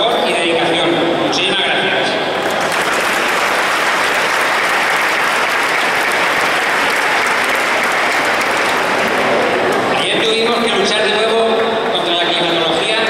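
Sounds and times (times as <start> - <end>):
audience applauding: 2.4 - 12.0.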